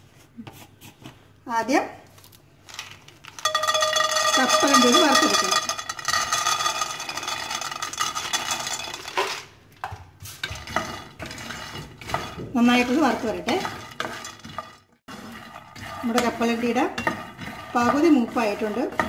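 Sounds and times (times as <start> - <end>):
peanuts clattering into pan: 2.7 - 15.2
spatula scraping pan: 3.4 - 9.4, 10.2 - 19.0.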